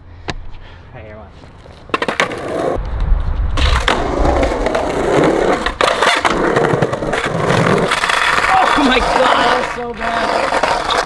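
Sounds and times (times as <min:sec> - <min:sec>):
skateboard wheels rolling on concrete: 0:00.0 - 0:11.0
skateboard tail scraping on coping: 0:03.6 - 0:11.0.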